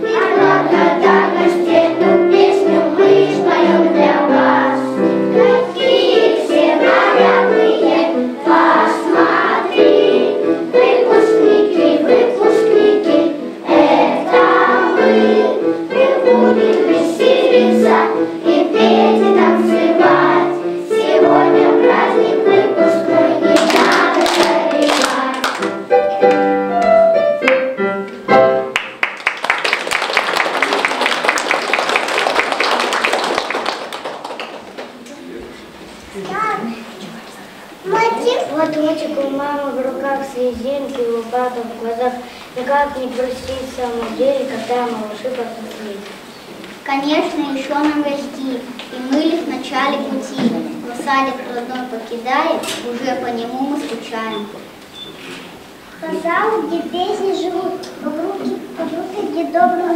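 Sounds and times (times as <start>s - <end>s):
applause: 23.6s - 25.7s, 28.7s - 35.1s.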